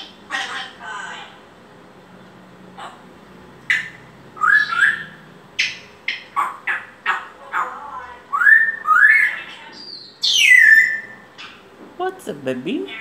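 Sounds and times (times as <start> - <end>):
parrot rising whistles: 4.4 - 5.2, 8.3 - 11.2.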